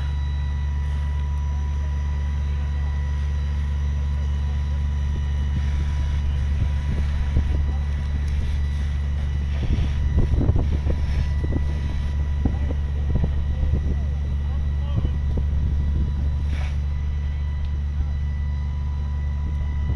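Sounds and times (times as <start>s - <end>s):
steady low rumble: 0.0s - 19.9s
wind buffeting microphone: 5.0s - 17.6s.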